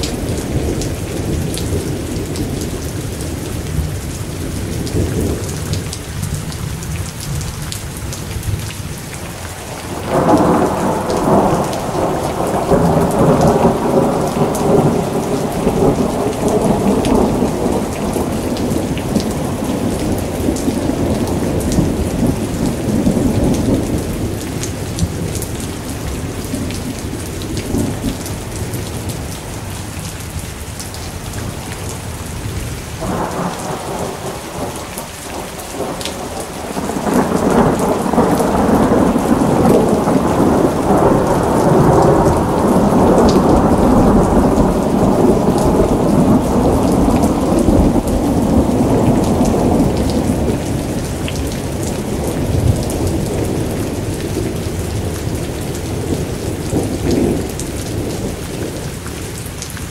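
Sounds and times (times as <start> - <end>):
rain falling: 0.0 - 59.9
rolling thunder: 9.8 - 29.3, 31.4 - 58.8.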